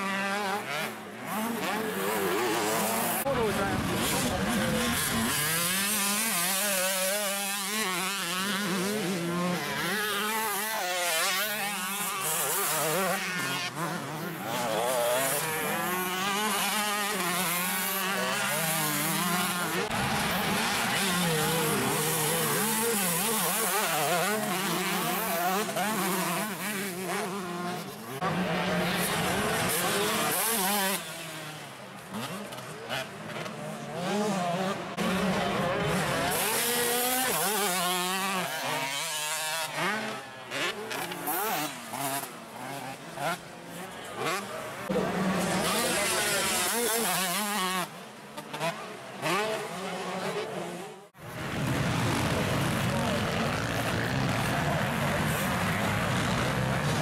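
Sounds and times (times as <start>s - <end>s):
motocross bike engines revving: 0.0s - 57.0s.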